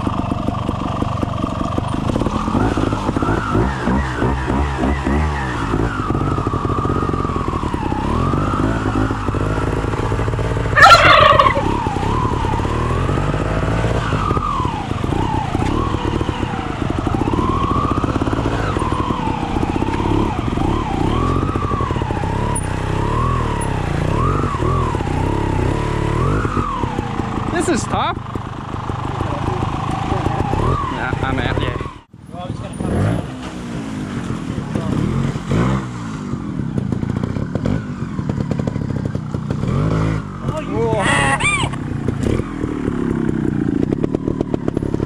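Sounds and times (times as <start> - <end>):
motorcycle engine revving: 0.0 - 45.0.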